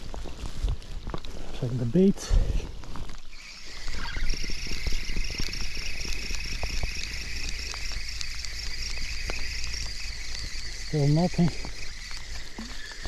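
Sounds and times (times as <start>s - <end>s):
rain ticking: 0.0s - 13.0s
fishing reel whirring: 3.3s - 13.0s.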